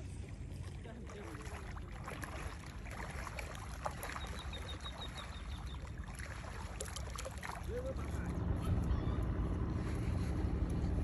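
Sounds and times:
seawater lapping and splashing: 0:00.0 - 0:11.0.

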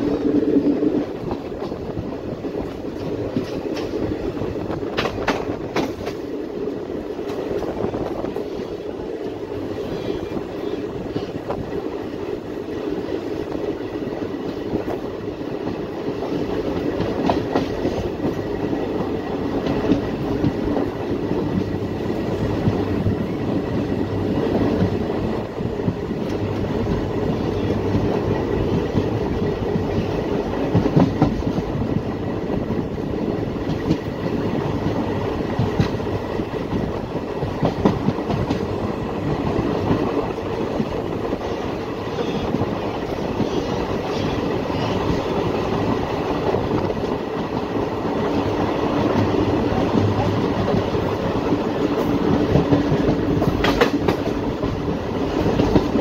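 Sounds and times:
train wheels rumbling on rails: 0:00.0 - 0:56.0
clacks over rail joints: 0:01.1 - 0:02.0, 0:02.6 - 0:06.3, 0:15.6 - 0:21.8, 0:25.8 - 0:31.9, 0:33.6 - 0:38.7, 0:49.0 - 0:56.0.

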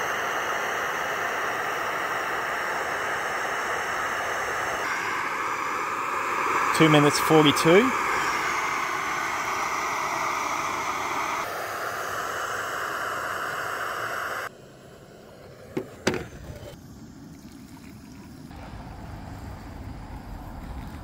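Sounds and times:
stove burner hissing: 0:00.0 - 0:21.0
hot water trickling into mugs: 0:17.2 - 0:18.6.

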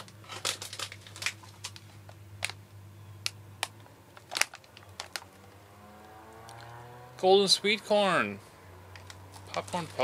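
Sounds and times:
plastic bag crinkling: 0:00.0 - 0:02.0, 0:09.0 - 0:10.0.

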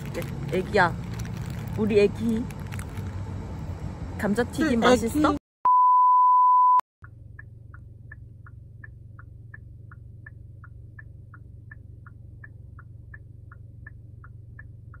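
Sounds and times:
low cabin hum: 0:00.0 - 0:05.4, 0:07.0 - 0:15.0
turn signal indicator clicking: 0:07.0 - 0:15.0.

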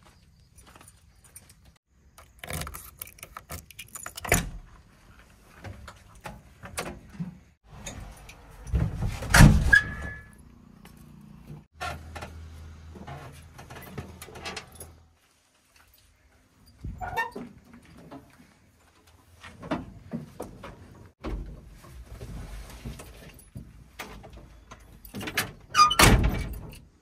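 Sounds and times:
clinks and rattles in cab: 0:13.6 - 0:15.0.

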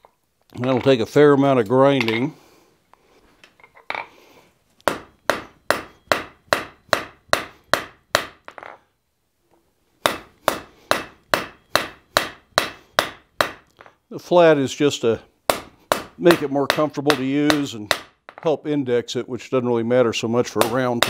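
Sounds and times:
hammer striking steel on anvil: 0:04.9 - 0:08.7, 0:10.0 - 0:13.7, 0:15.5 - 0:18.5.

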